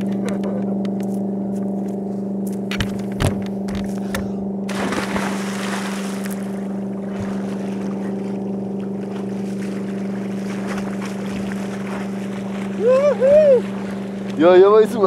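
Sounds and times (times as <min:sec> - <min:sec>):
motorboat engine idling: 0:00.0 - 0:04.8, 0:05.8 - 0:15.0
rush of water: 0:04.7 - 0:08.3, 0:09.0 - 0:14.6.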